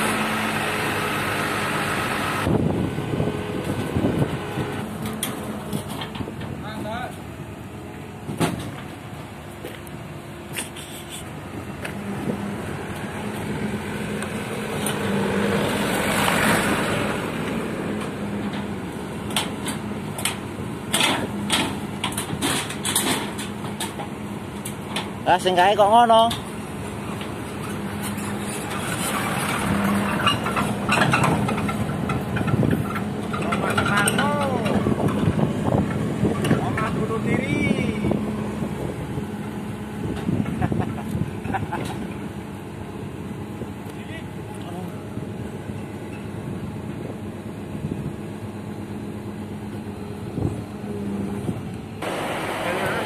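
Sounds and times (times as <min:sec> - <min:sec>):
diesel engine running: 0:00.0 - 0:53.0
machine engine humming: 0:47.2 - 0:53.0.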